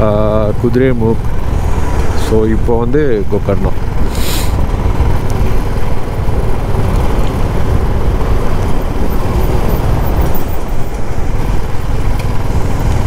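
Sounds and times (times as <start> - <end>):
motorcycle engine running: 0.0 - 13.0
wind rush: 1.1 - 13.0.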